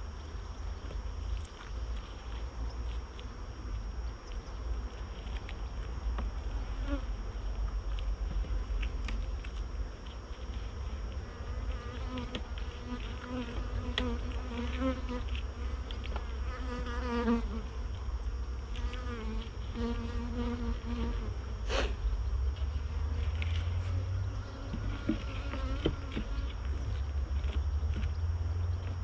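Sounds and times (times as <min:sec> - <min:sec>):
honeybees buzzing: 0:06.6 - 0:07.2, 0:10.6 - 0:27.0.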